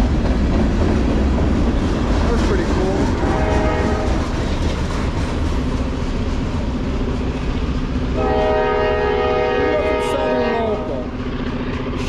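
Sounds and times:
freight cars rolling on jointed track: 0.0s - 8.2s
train horn chord: 3.2s - 4.2s, 8.2s - 11.0s.

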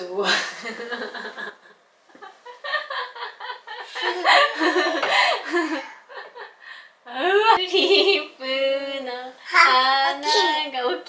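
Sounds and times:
woman laughing: 2.2s - 6.6s.

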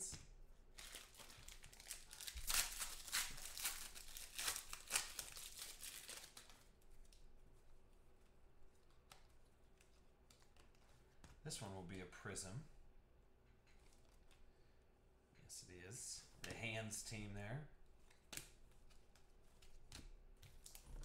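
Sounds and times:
foil pack tearing and crinkling: 0.8s - 6.6s.

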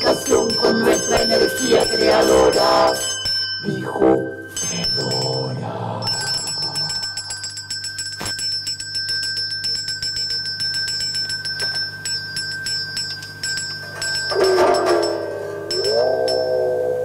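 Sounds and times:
lower pitched multi-tone sound: 0.0s - 7.5s, 13.8s - 17.0s
small bell ringing: 0.0s - 16.8s.

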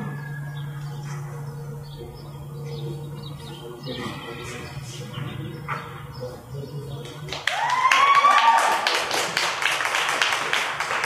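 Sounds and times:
audience applause: 7.3s - 11.0s
whooping cheers: 7.4s - 9.2s.

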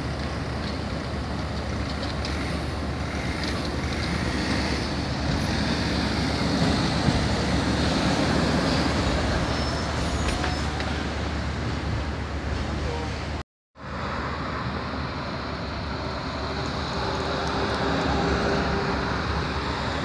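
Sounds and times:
city traffic noise: 0.0s - 20.0s
tram rolling past on track: 3.6s - 13.4s.

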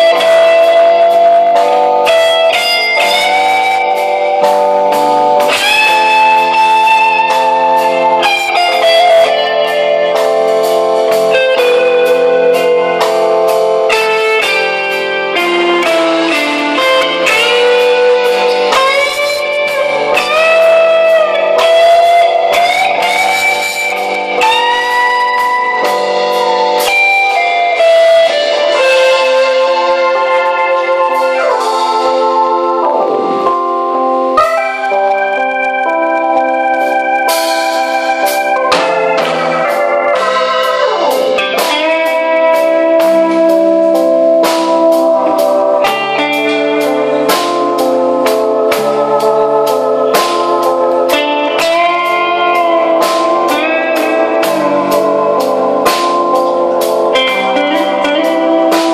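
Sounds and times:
bass guitar: 0.0s - 58.9s
drums: 0.0s - 58.9s
electric lead guitar melody: 0.0s - 58.9s
rock band playing: 0.0s - 58.9s
drum hits: 37.6s - 43.6s.

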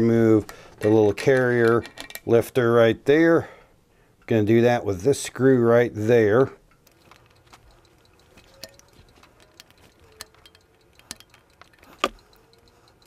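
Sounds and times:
rifle handling noises: 0.4s - 2.4s, 6.7s - 12.3s
screwdriver clicking on metal: 6.7s - 13.0s.

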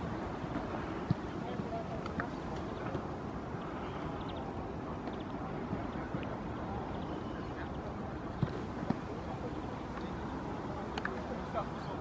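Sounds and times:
outdoor background noise: 0.0s - 12.0s.

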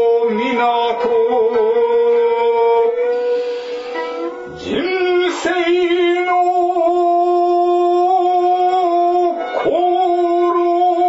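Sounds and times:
person chanting a held note: 9.4s - 11.0s.

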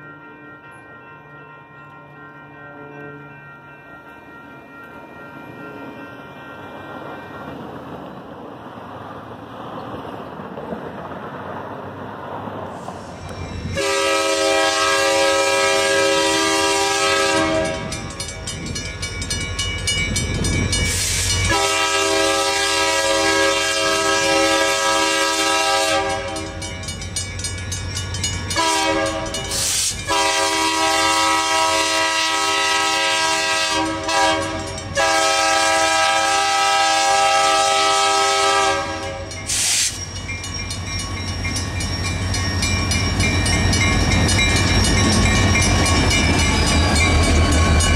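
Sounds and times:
locomotive engine and wheels rumbling: 0.0s - 47.9s
locomotive air horn blasts: 13.8s - 18.0s, 20.9s - 26.6s, 28.6s - 39.9s.

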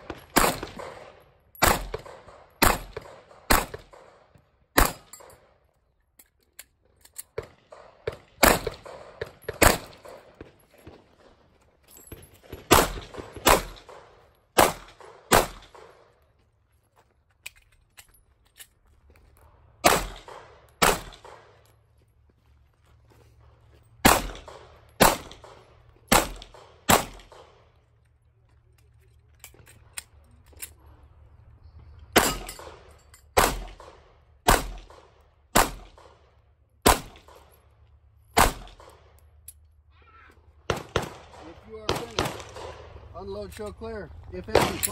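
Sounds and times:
pistol shots with echo: 0.0s - 5.2s, 7.4s - 10.5s, 12.5s - 16.1s, 19.8s - 21.6s, 24.0s - 27.7s, 32.2s - 37.5s, 38.4s - 39.1s, 40.6s - 43.1s, 44.4s - 44.9s.

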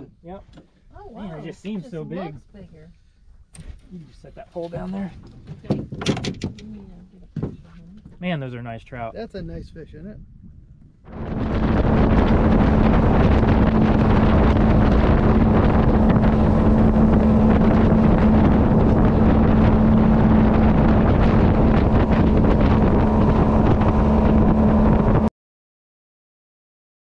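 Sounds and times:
wind buffeting microphone: 4.8s - 25.3s
outboard motor droning: 11.1s - 25.3s.

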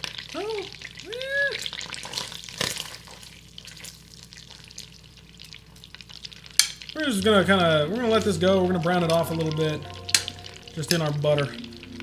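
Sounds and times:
meat sizzling in butter: 0.0s - 12.0s
short rising and falling tones: 9.6s - 12.0s.

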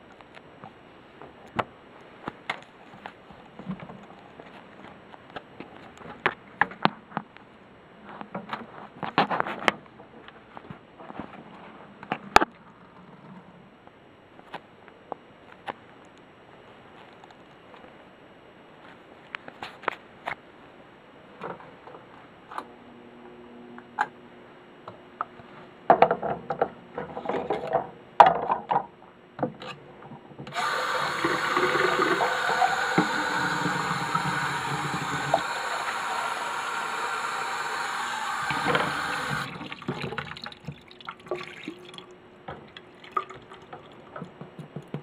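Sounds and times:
water pouring into plastic cup: 30.5s - 42.1s, 42.7s - 44.2s
plastic cups knocking in sink: 30.8s - 35.4s, 38.5s - 41.9s.

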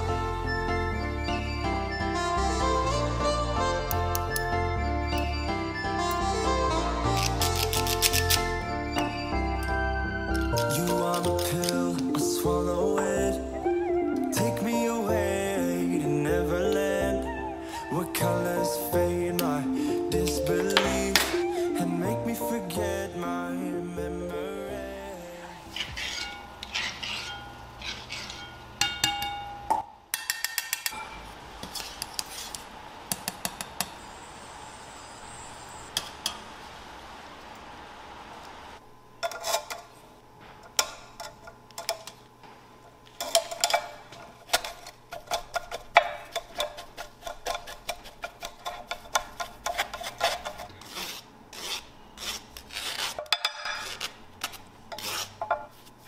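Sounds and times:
spoon scraping metal mesh strainer: 25.7s - 28.6s
hot oil hissing: 31.2s - 38.8s.

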